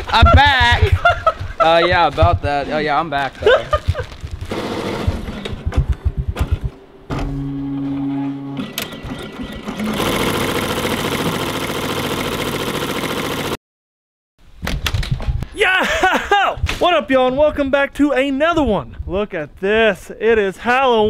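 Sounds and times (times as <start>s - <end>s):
machine hum: 4.1s - 13.6s
embroidery machine stitching: 4.5s - 5.4s, 8.6s - 13.6s.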